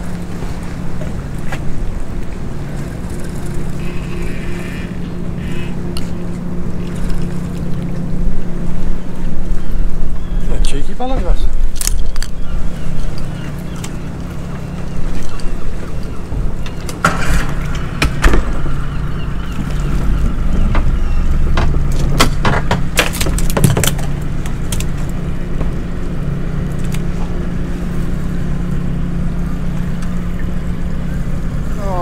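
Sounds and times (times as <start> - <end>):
outboard motor idling: 0.0 - 32.0
gear knocking in boat: 13.7 - 27.4.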